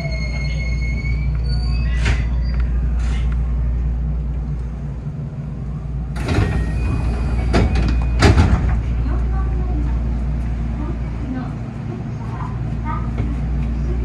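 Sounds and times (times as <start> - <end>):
electric train humming: 0.0 - 14.0.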